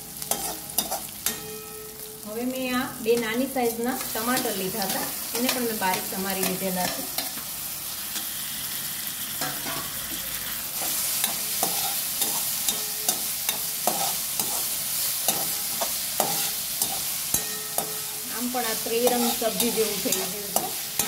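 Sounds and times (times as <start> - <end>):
vegetables sizzling in oil: 0.0 - 21.0
steel spoon clinking on pan: 0.2 - 1.9, 11.2 - 14.6, 15.3 - 18.2, 19.0 - 21.0.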